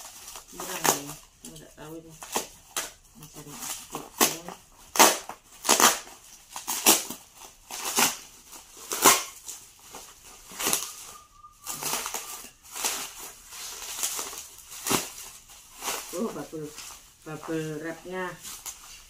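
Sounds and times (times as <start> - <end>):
bubble wrap crinkling: 0.0 - 19.0.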